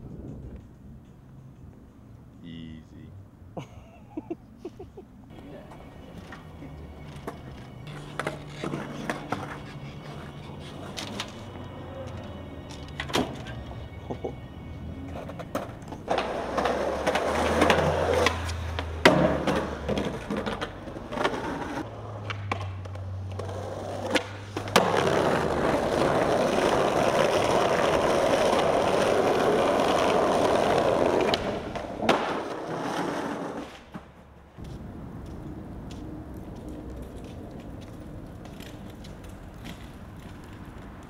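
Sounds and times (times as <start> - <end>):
skateboard wheels rolling on concrete: 0.0 - 2.2, 3.6 - 41.0
skateboard clacks popping and landing: 15.2 - 34.2.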